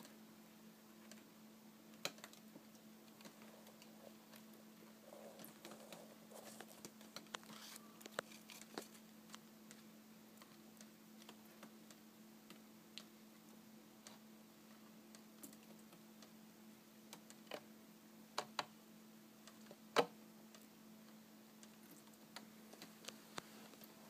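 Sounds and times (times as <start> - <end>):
steady low hum: 0.0 - 17.1
soft rustle: 2.6 - 10.6, 21.8 - 24.0.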